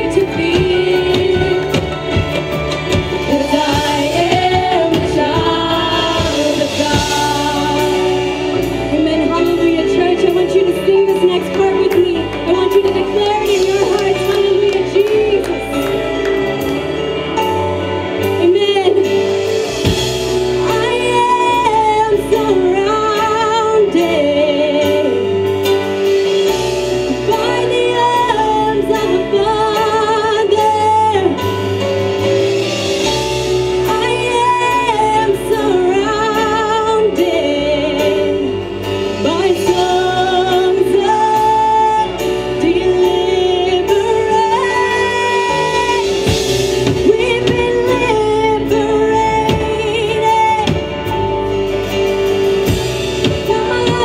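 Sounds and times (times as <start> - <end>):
women singing worship song: 0.0 - 16.6, 18.4 - 25.4, 27.1 - 31.4, 33.8 - 51.2, 53.4 - 54.0.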